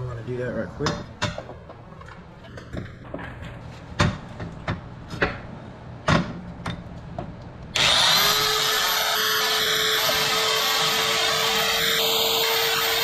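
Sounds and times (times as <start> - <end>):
belt sander whining: 7.8 - 13.0.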